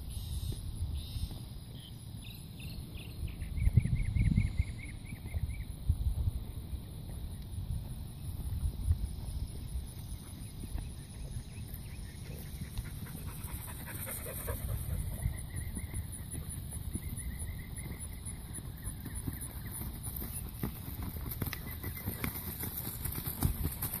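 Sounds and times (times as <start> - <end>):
wind rumble on microphone: 2.6 - 21.6
dog panting: 12.3 - 15.2.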